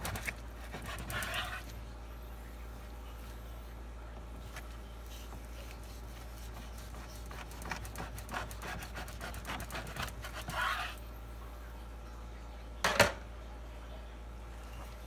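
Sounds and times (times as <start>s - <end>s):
knife sawing through meat: 0.1s - 1.7s, 5.7s - 11.0s.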